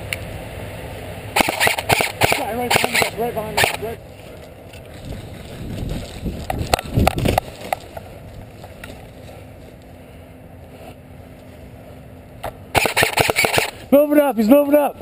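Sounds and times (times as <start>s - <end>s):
sharp clicks: 1.4s - 3.9s, 12.4s - 13.8s
low microphone rumble: 2.4s - 12.4s
footsteps crunching dry leaves: 3.6s - 9.9s.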